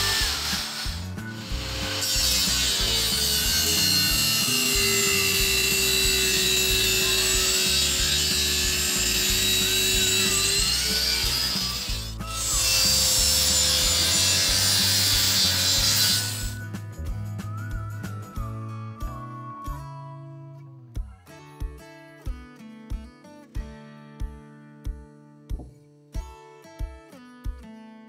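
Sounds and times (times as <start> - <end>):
table saw cutting wood: 0.0 - 16.6.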